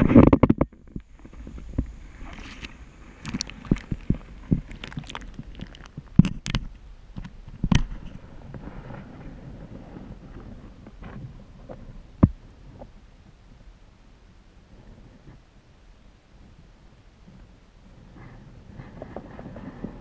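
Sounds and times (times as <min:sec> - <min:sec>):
sharp clicks and knocks: 0:00.0 - 0:08.1
underwater stream rumble: 0:00.0 - 0:15.4.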